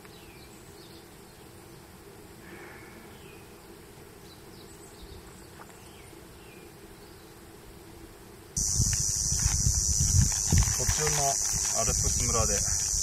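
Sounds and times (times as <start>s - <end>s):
small birds chirping: 3.1s - 7.4s.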